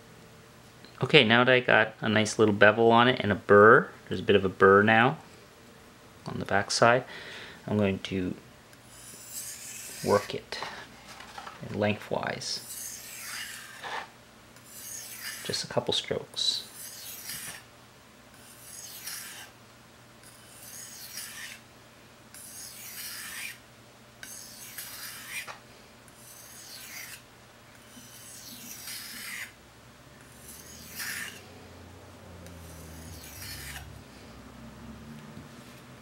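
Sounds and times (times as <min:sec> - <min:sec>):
knife sharpening on whetstone: 0:08.9 - 0:10.3, 0:12.6 - 0:13.9, 0:14.6 - 0:15.5, 0:16.7 - 0:17.6, 0:18.4 - 0:19.5, 0:20.2 - 0:21.6, 0:22.4 - 0:23.6, 0:24.2 - 0:25.5, 0:26.2 - 0:27.2, 0:27.8 - 0:29.6, 0:30.3 - 0:31.4, 0:32.5 - 0:33.9.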